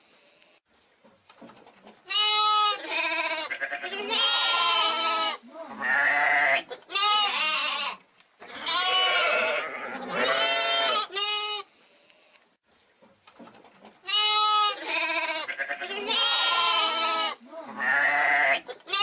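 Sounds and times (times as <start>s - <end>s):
young sheep bleating: 2.1s - 11.7s, 14.0s - 19.0s.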